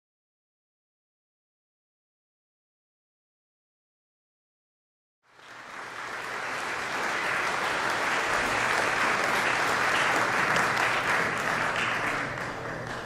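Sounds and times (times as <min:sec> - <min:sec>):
audience applauding: 0:05.3 - 0:13.0.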